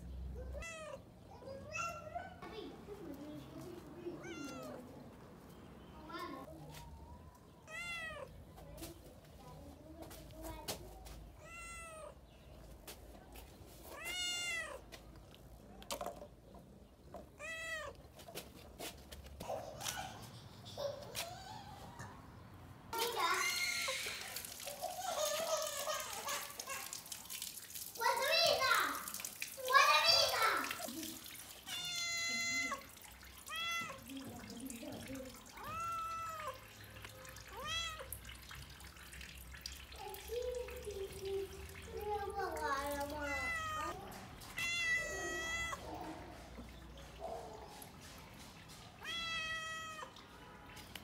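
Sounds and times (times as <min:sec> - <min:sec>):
cat meowing: 0:00.5 - 0:01.0, 0:04.2 - 0:04.8, 0:07.6 - 0:08.3, 0:11.4 - 0:12.2, 0:13.9 - 0:14.8, 0:17.4 - 0:18.0, 0:31.6 - 0:34.1, 0:35.5 - 0:36.6, 0:37.5 - 0:38.2, 0:43.2 - 0:46.0, 0:49.0 - 0:50.2.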